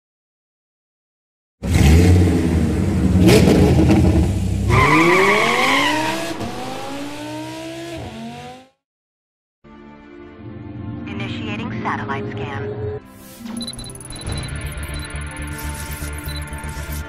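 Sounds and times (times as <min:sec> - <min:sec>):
sports car engine revving: 0:01.6 - 0:08.8
high tyre squeal: 0:04.7 - 0:06.3.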